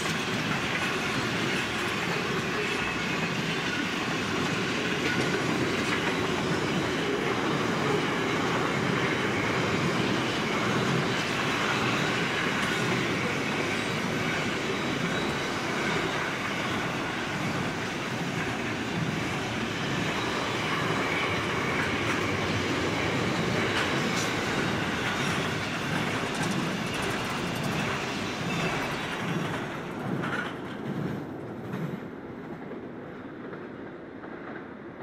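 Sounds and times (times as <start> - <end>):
freight train rolling past: 0.0 - 35.0
wheels clicking over rail joints: 20.9 - 32.0.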